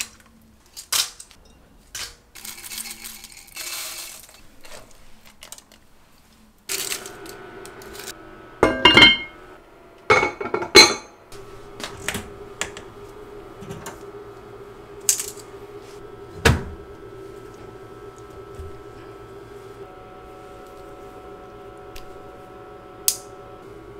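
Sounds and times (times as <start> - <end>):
steady hum: 6.7 - 23.9
metal kitchenware clattering: 8.6 - 9.4, 10.1 - 11.2.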